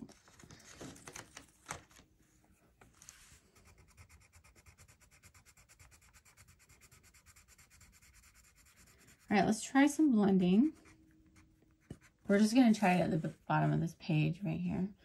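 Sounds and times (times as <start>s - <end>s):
colored pencil scratching on paper: 3.0s - 13.2s.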